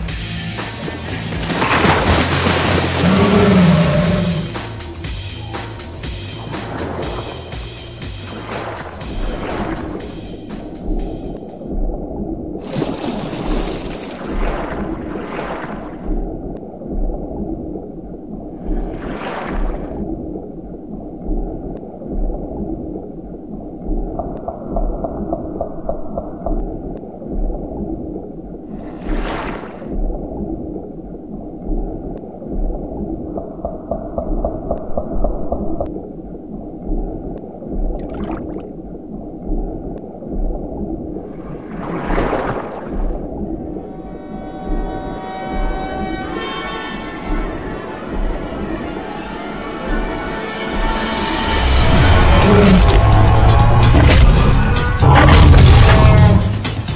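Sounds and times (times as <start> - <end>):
dark rumbling ambient soundtrack: 0.0 - 29.1, 29.8 - 56.9
wavering mid-pitched tone: 43.6 - 52.8
rushing swell: 43.7 - 56.9
low thud: 52.3 - 56.6.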